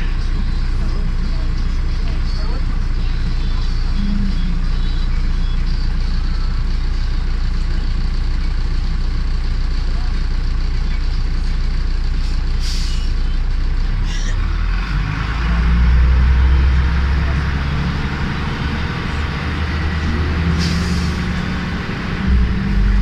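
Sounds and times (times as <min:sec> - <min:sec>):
bus engine drone: 0:00.0 - 0:23.0
road noise: 0:00.0 - 0:23.0
short hisses: 0:12.2 - 0:13.1.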